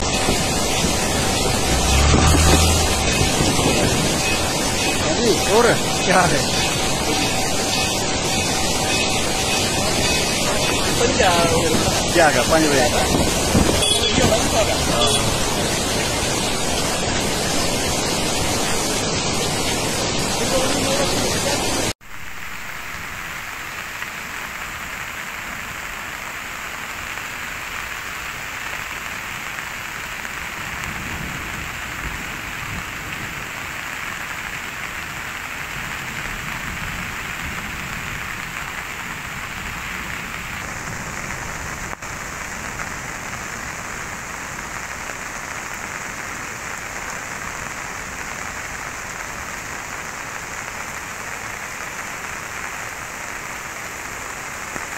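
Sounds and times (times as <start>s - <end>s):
heavy rain falling: 0.0s - 54.9s.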